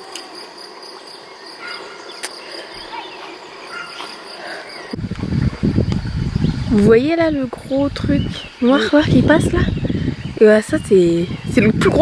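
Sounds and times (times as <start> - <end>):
crickets trilling: 0.0 - 12.0
low rumble on microphone: 5.0 - 12.0.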